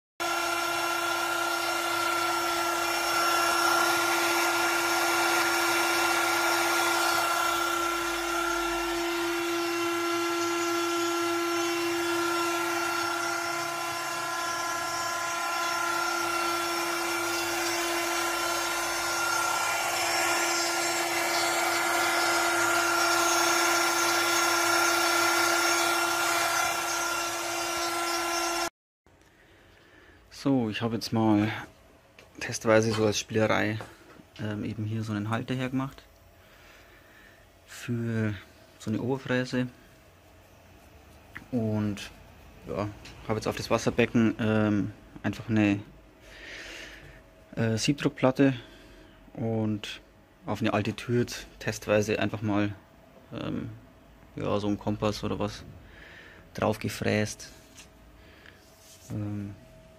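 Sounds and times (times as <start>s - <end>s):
router whining while engraving wood: 0.2s - 28.7s.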